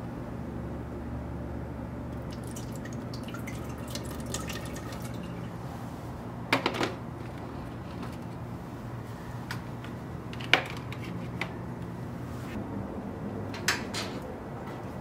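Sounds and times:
water dripping: 0:02.2 - 0:05.6.

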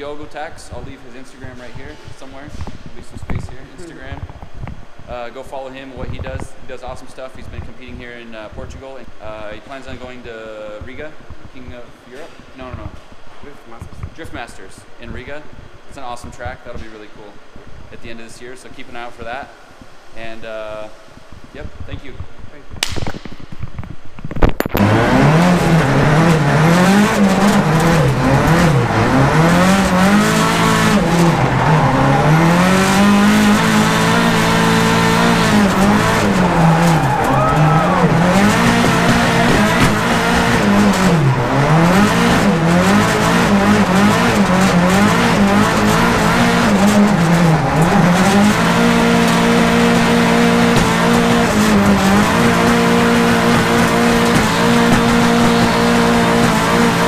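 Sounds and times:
car engine revving: 0:24.6 - 0:57.0
tyre squeal: 0:26.0 - 0:49.7.

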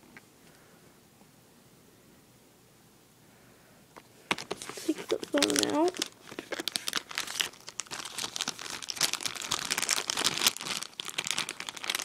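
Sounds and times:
cardboard packaging rustling: 0:04.3 - 0:12.0.

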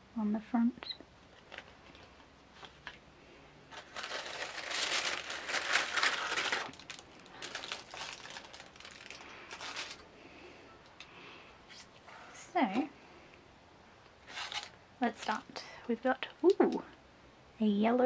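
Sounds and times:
tissue paper crinkling: 0:01.2 - 0:03.0, 0:03.7 - 0:10.0, 0:14.2 - 0:15.4.

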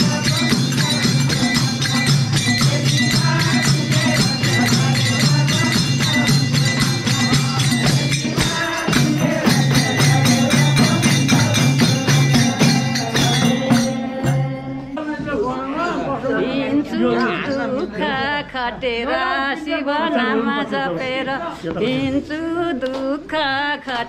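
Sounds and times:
jingling hand percussion: 0:00.0 - 0:15.3.

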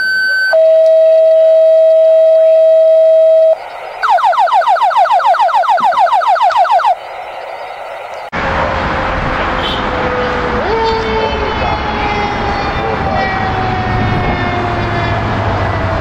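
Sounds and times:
steady paging tone: 0:00.0 - 0:08.3
rapid falling electronic sweeps: 0:02.5 - 0:08.3.

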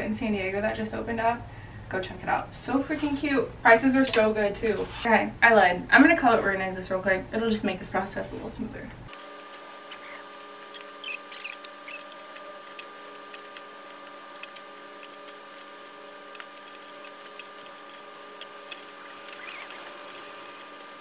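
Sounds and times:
steady hum: 0:06.7 - 0:21.0.

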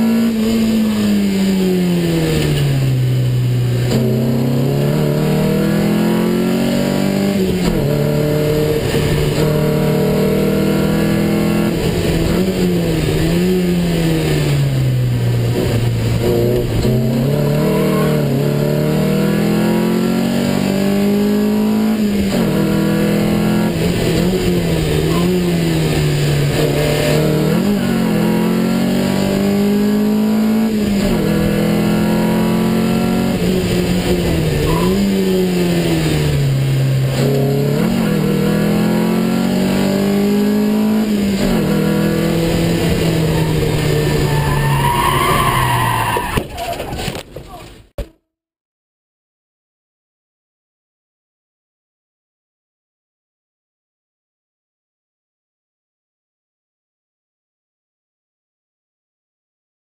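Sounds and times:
sports car engine revving: 0:00.0 - 0:45.8
road and wind noise: 0:00.0 - 0:48.0.

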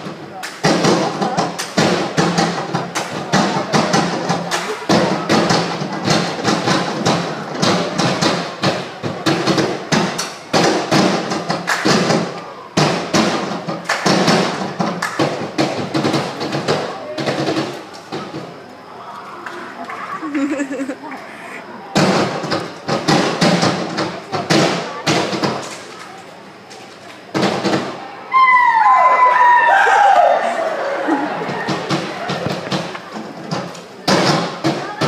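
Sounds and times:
percussion hits and thumps: 0:00.0 - 0:18.6, 0:22.0 - 0:25.8, 0:27.3 - 0:28.0, 0:31.3 - 0:35.0.

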